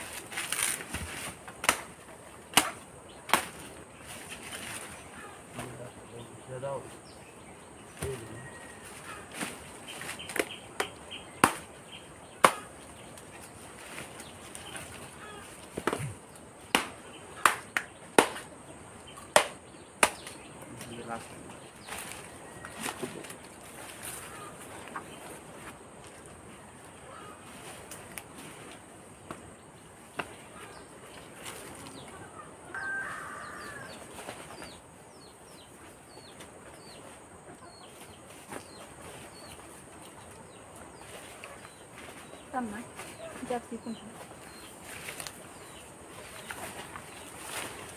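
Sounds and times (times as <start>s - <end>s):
machete chopping wood: 0.6s - 1.9s, 2.5s - 3.6s, 10.3s - 11.7s, 12.4s - 12.7s, 15.8s - 18.5s, 19.3s - 20.4s
hen calling: 14.6s - 16.2s.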